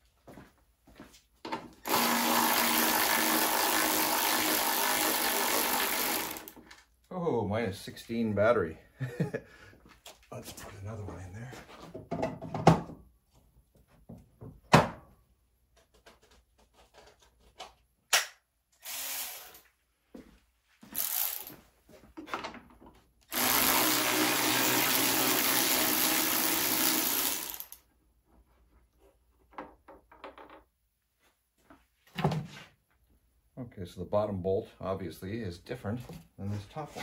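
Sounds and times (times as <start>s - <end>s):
cordless drill running: 1.8s - 6.6s, 18.8s - 19.6s, 21.0s - 21.6s, 23.3s - 27.8s.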